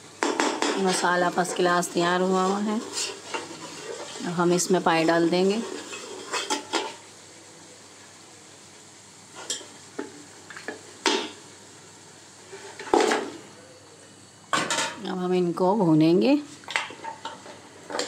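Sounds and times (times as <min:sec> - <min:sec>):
masala sizzling in a pot: 0:00.0 - 0:18.0.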